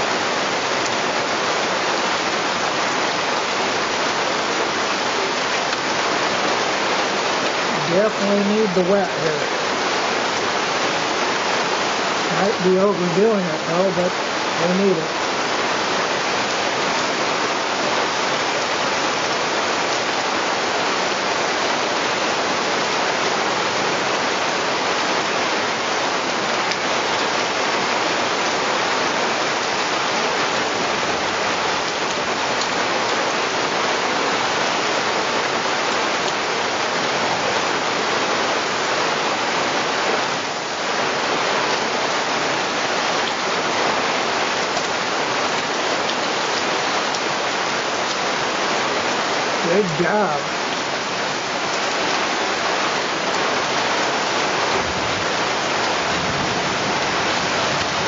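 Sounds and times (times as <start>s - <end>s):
heavy rain pouring: 0.0s - 58.0s.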